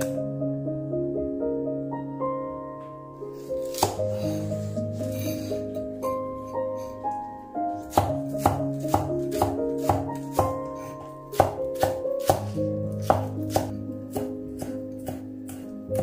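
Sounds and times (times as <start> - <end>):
soft piano music: 0.0 - 16.0
knife chopping on wooden board: 3.6 - 4.2, 7.8 - 16.0.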